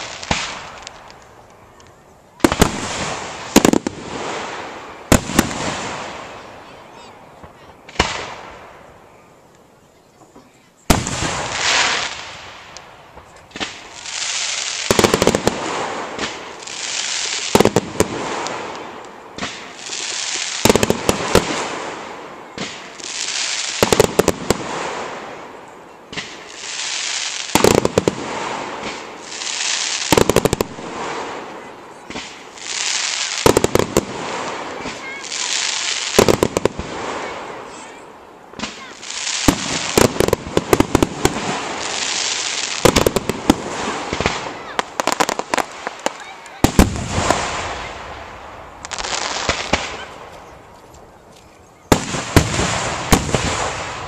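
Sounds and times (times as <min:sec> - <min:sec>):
fireworks bang: 0:00.0 - 0:01.2, 0:02.4 - 0:06.3, 0:07.4 - 0:08.8, 0:10.9 - 0:14.0, 0:26.1 - 0:26.6, 0:27.5 - 0:37.8, 0:38.6 - 0:50.3, 0:51.9 - 0:54.0
firework hiss: 0:00.0 - 0:01.5, 0:02.4 - 0:06.6, 0:10.9 - 0:50.6, 0:51.9 - 0:54.0
volleys of sharp firework cracks: 0:00.0 - 0:06.7, 0:07.3 - 0:09.0, 0:10.9 - 0:50.6, 0:51.9 - 0:54.0.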